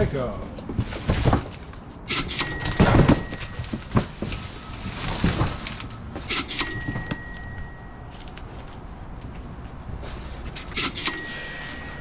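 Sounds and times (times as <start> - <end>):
cardboard boxes knocking and scraping: 0.6 - 1.7, 2.6 - 5.8
cash register chime: 2.1 - 3.9, 6.3 - 8.2, 10.7 - 12.0.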